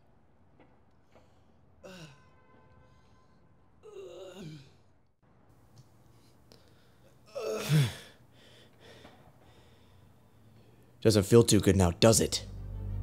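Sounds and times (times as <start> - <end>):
man groaning in pain: 3.8 - 4.8, 7.3 - 8.2.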